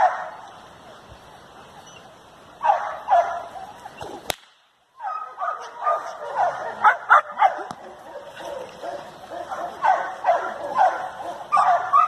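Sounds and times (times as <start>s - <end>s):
dog barking: 2.6s - 3.6s, 5.0s - 12.0s
sharp crack: 4.0s - 4.8s.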